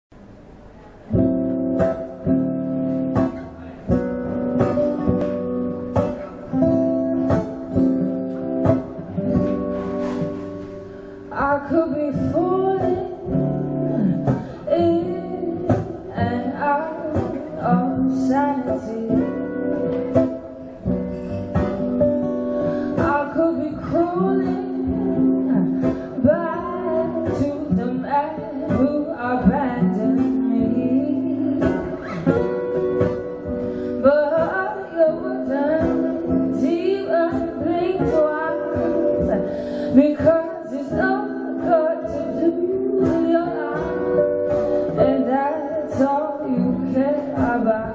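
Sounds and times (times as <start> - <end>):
acoustic guitars playing: 0.1 - 47.9
woman singing: 11.2 - 20.6, 21.5 - 47.9.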